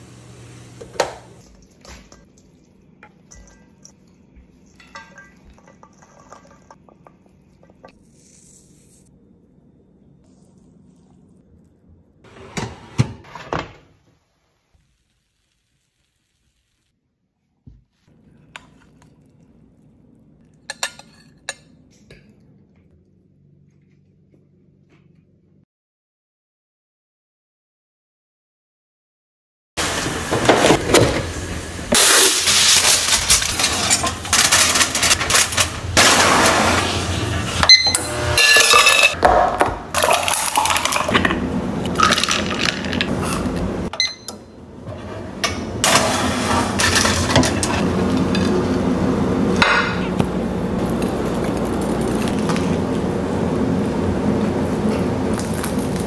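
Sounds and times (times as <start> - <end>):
glass and dishes clinking: 1.7 - 4.1, 4.7 - 7.9.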